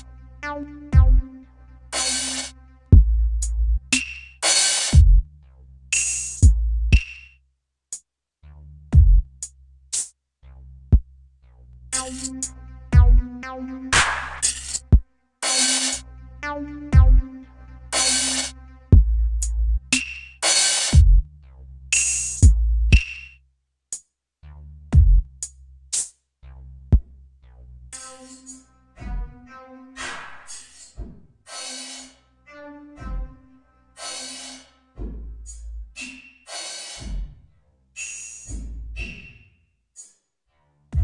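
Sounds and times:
steady bass line: 0:00.0 - 0:04.2, 0:04.9 - 0:07.0, 0:08.4 - 0:09.4, 0:10.4 - 0:15.0, 0:16.0 - 0:20.2, 0:20.9 - 0:23.0, 0:24.4 - 0:25.5
deep kick drums: 0:00.9 - 0:01.3, 0:02.9 - 0:03.4, 0:04.9 - 0:05.3, 0:06.4 - 0:07.1, 0:08.9 - 0:09.3, 0:12.9 - 0:13.3, 0:16.9 - 0:17.3, 0:18.9 - 0:19.4, 0:21.0 - 0:21.3, 0:22.4 - 0:23.0, 0:24.9 - 0:25.3
snare hit: 0:03.9 - 0:05.0, 0:13.9 - 0:14.8, 0:20.0 - 0:21.0
hi-hat ticks: 0:05.9 - 0:08.1, 0:09.0 - 0:10.2, 0:18.0 - 0:21.3, 0:21.9 - 0:24.1, 0:25.0 - 0:26.2.

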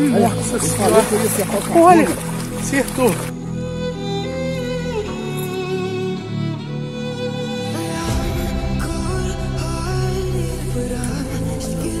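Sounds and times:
background music with held chords: 0:00.0 - 0:12.0.

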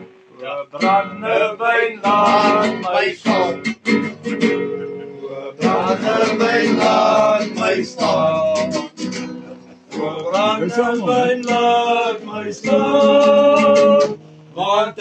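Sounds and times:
acoustic guitar strumming: 0:00.0 - 0:15.0
men singing: 0:00.5 - 0:03.8, 0:05.2 - 0:09.1, 0:10.0 - 0:15.0.

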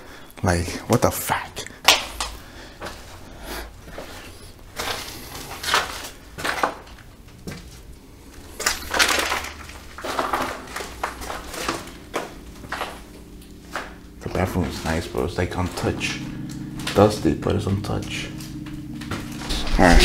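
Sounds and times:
footsteps crunching on debris: 0:03.9 - 0:17.3, 0:18.1 - 0:19.8.

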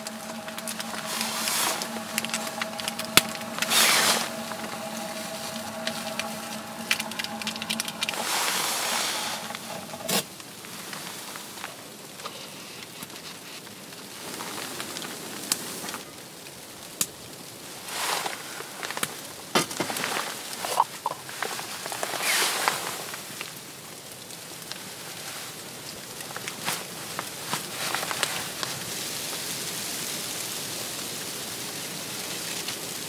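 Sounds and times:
wood fire crackling: 0:00.0 - 0:10.2
faint steady hum: 0:00.0 - 0:10.3.

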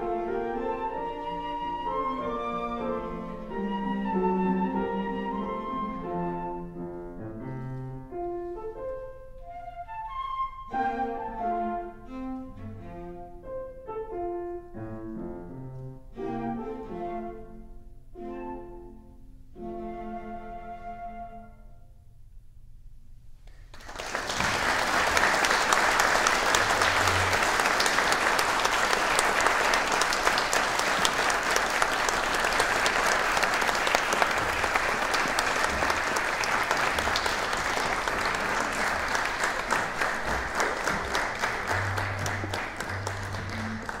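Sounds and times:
audience applauding: 0:23.5 - 0:44.0.

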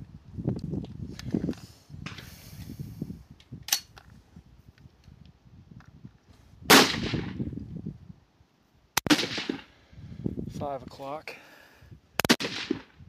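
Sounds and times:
rifle shots: 0:06.7 - 0:07.4, 0:09.0 - 0:09.7, 0:12.2 - 0:13.0.

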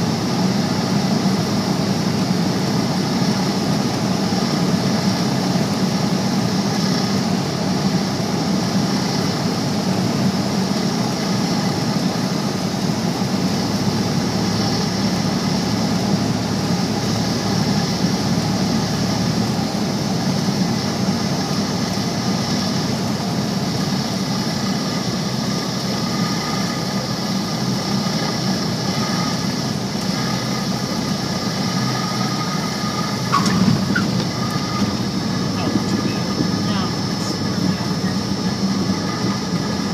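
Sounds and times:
propeller plane engine droning: 0:00.0 - 0:39.9
wheels bumping on runway: 0:33.1 - 0:39.9.

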